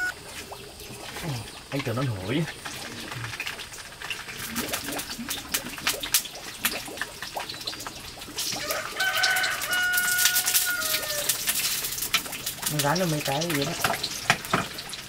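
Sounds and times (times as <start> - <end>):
sausages sizzling and crackling: 0.0 - 15.0
rooster crowing: 8.6 - 11.5.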